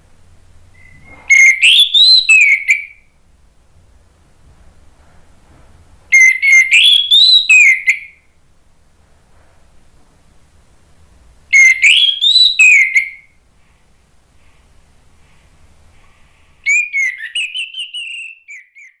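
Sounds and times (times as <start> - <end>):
thrush singing whistled phrases: 0.8 - 3.1, 6.1 - 8.2, 11.5 - 13.4, 16.6 - 19.0.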